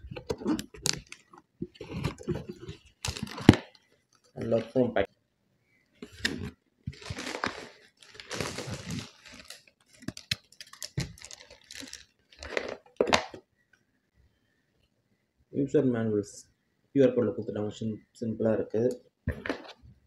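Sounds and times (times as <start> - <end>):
cardboard and plastic rustling: 0.0 - 3.8, 6.0 - 13.4.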